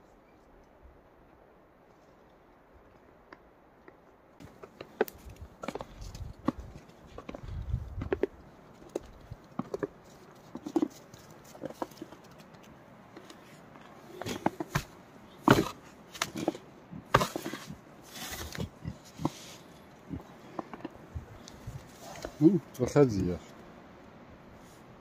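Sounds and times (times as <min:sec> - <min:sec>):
animal footsteps: 0:02.8 - 0:22.5.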